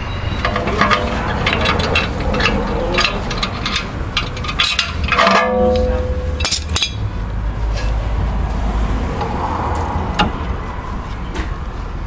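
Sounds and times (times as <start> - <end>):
metal tools clicking and knocking: 0.4 - 7.0.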